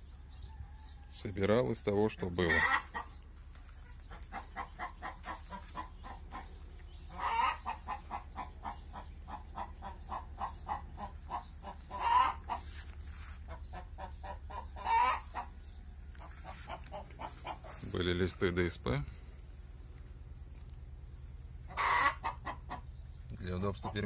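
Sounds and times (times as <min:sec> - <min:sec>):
chickens clucking: 0:00.0 - 0:24.0
loud chicken calls: 0:02.4 - 0:03.2, 0:03.8 - 0:17.9, 0:21.6 - 0:23.0.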